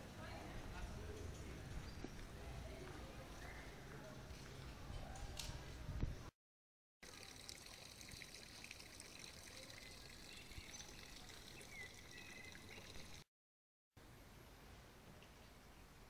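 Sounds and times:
water trickling from a fountain: 7.0 - 13.3.

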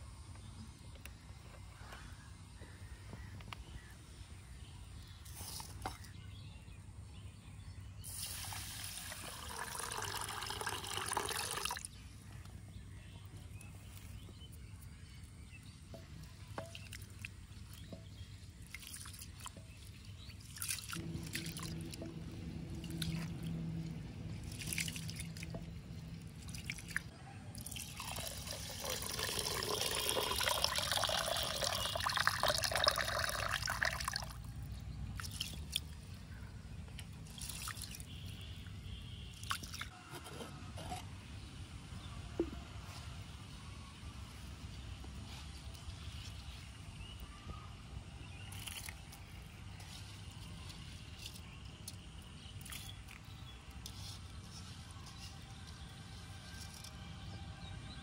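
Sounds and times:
water pouring: 8.1 - 12.0, 18.6 - 34.5, 37.2 - 38.2
water dripping: 15.9 - 36.0.

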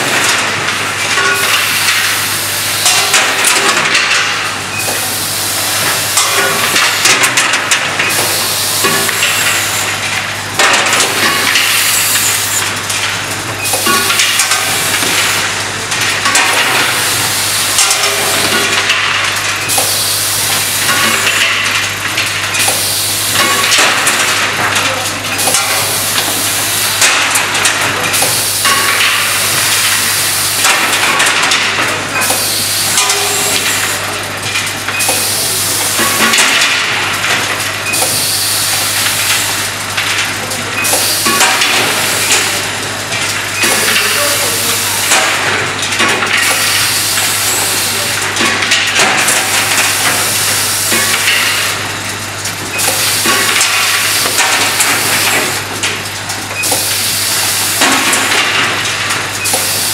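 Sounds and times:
machine hissing: 4.4 - 7.2, 8.0 - 12.9, 13.6 - 19.0, 19.6 - 21.7, 22.6 - 24.4, 25.3 - 27.5, 28.1 - 31.4, 32.2 - 34.3, 35.0 - 37.0, 37.8 - 39.8, 40.4 - 45.6, 46.3 - 51.9, 52.7 - 59.9.

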